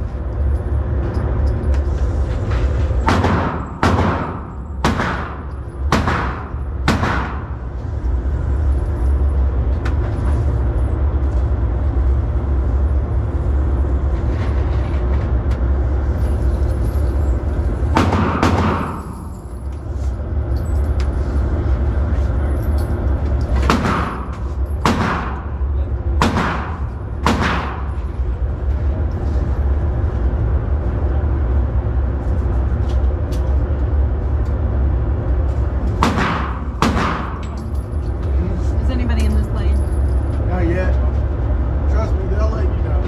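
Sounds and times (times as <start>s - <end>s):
steady low rumble: 0.0s - 43.0s
gunshots with short echo: 3.1s - 7.6s, 26.2s - 27.9s.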